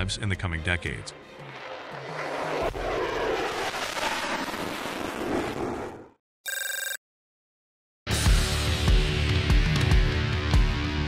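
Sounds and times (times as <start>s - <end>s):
jet flyby roar: 0.0s - 6.1s
brief electronic ring: 6.5s - 7.0s.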